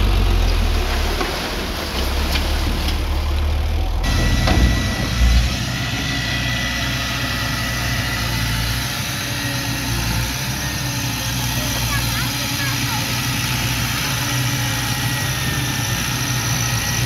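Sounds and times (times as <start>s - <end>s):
bulldozer diesel engine running: 0.0s - 17.0s
low thump: 4.1s - 5.6s.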